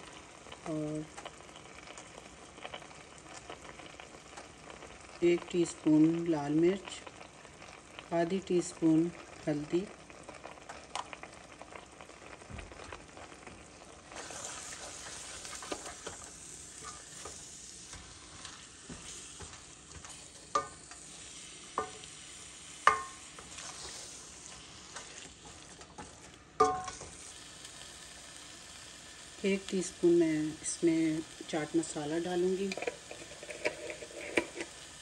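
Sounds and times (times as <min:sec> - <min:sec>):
mince sizzling in a pot: 0:00.0 - 0:35.0
spatula knocking steel pot: 0:21.8 - 0:22.0, 0:22.8 - 0:23.2, 0:26.6 - 0:27.0.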